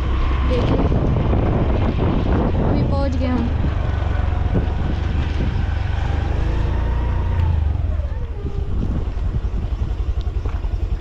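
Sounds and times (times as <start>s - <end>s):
small vehicle engine idling: 3.2s - 5.8s, 6.5s - 11.0s.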